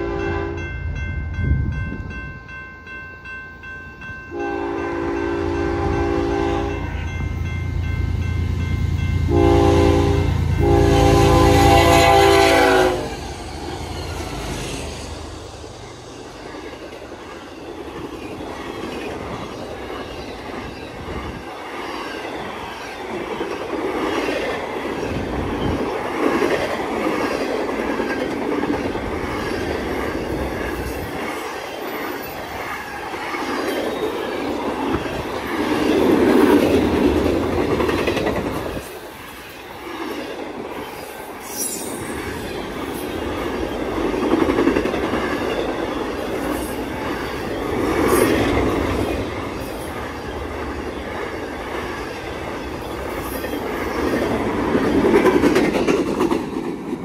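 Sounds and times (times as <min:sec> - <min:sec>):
train wheels clattering on rails: 0:15.3 - 0:57.0.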